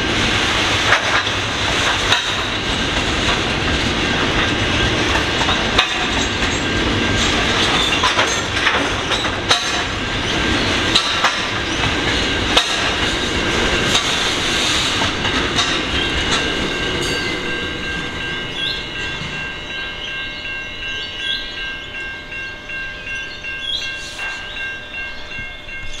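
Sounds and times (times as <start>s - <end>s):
train wheels clacking over rail joints: 0.2s - 17.2s
steady high-pitched tones: 2.3s - 26.0s.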